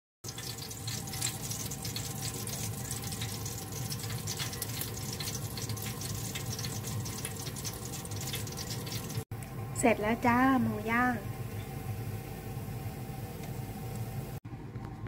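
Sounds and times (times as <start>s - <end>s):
meat sizzling on a grill: 0.3s - 9.3s.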